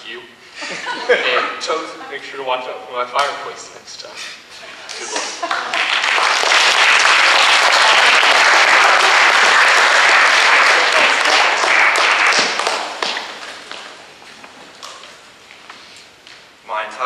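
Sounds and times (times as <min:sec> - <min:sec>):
audience applauding: 0:04.9 - 0:14.0.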